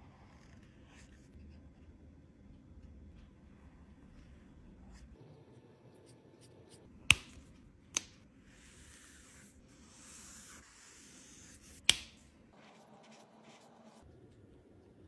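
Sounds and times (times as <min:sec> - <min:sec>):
marker scratching on paper: 0:08.5 - 0:11.9, 0:12.6 - 0:14.0.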